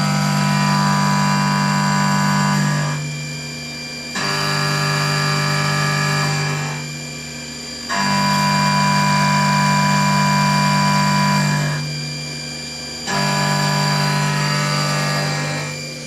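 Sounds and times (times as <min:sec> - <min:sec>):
milling machine cutter whine: 0:00.0 - 0:16.0.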